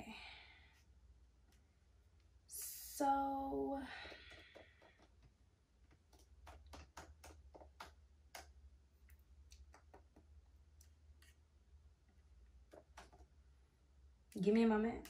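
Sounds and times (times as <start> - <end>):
laptop keyboard typing: 4.0 - 5.3, 5.9 - 8.6, 12.6 - 13.3.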